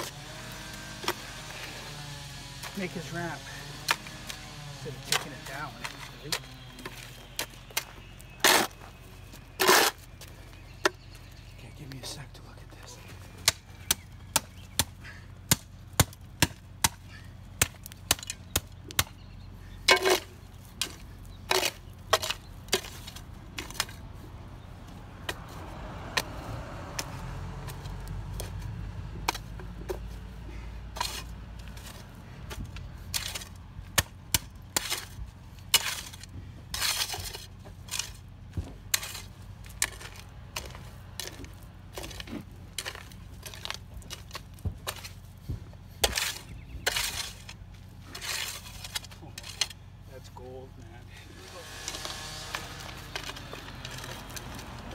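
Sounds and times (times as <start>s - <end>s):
hand tool chopping into dirt: 3.6s - 4.4s, 17.6s - 19.2s, 26.9s - 30.0s, 46.0s - 47.5s.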